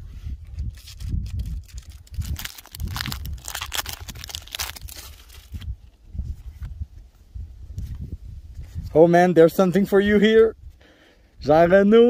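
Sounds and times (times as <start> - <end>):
foil wrapper crinkling: 0.5 - 5.7.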